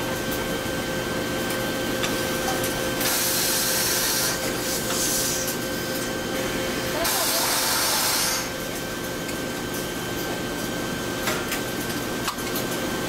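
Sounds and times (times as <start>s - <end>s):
ironing machines humming: 0.0s - 13.0s
steam hissing: 3.0s - 5.5s, 7.0s - 8.5s.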